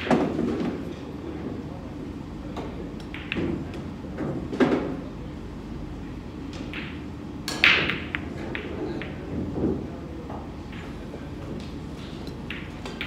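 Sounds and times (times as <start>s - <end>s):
pool balls clacking: 2.6s - 5.0s, 10.6s - 13.0s.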